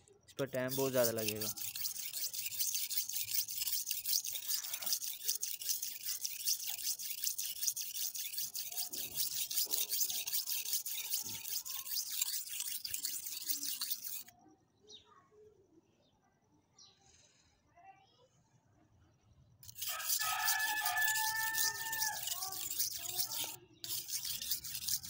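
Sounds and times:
knife scraping on sharpening stone: 0.4 - 14.3, 19.6 - 25.0.

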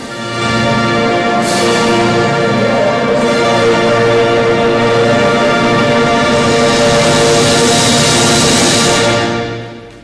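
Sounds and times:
marching band chords: 0.0 - 10.0.

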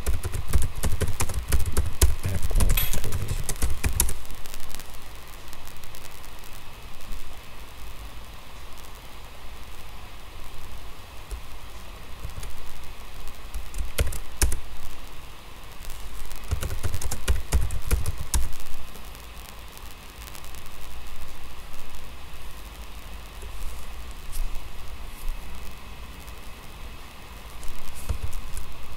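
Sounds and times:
keyboard typing: 0.0 - 4.2, 13.5 - 14.6, 16.5 - 18.5
background hiss: 0.0 - 28.9.

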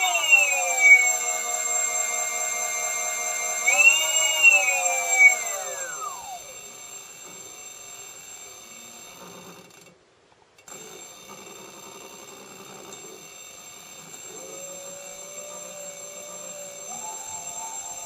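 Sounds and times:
electric motor whining: 0.0 - 7.4, 12.9 - 18.0.

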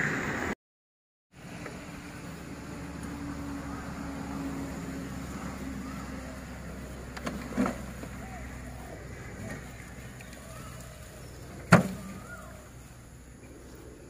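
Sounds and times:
engine hum: 1.3 - 14.0.

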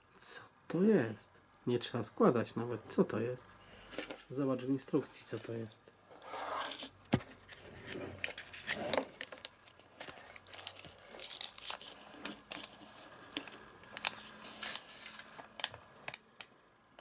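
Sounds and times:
paper crinkling and rustling: 6.5 - 16.2.

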